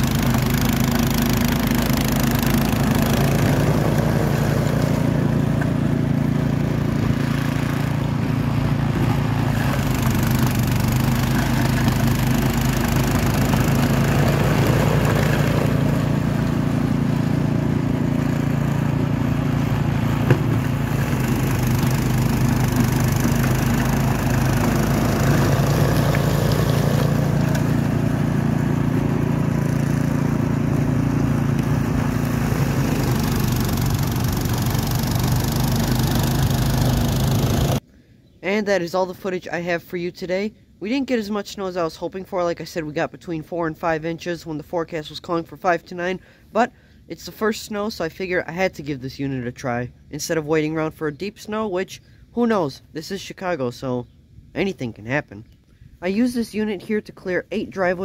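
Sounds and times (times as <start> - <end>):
snowblower engine running: 0.0 - 37.8.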